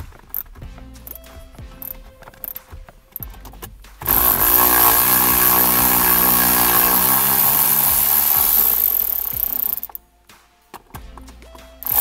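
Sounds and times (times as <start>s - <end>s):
electric ratchet running: 4.1s - 10.0s.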